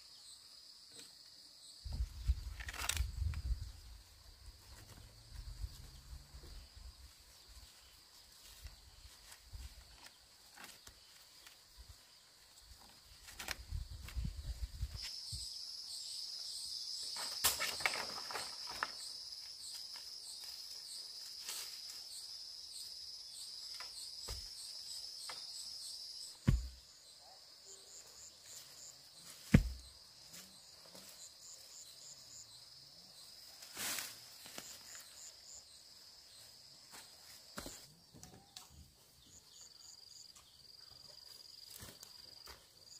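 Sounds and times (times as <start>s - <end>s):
insects trilling: 0.0s - 42.9s
sharp thumps: 26.4s - 26.8s, 29.5s - 29.9s.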